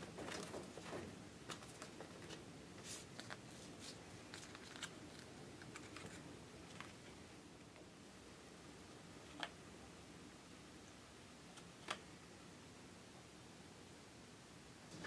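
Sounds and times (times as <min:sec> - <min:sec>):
card being folded by hand: 0:01.4 - 0:07.0.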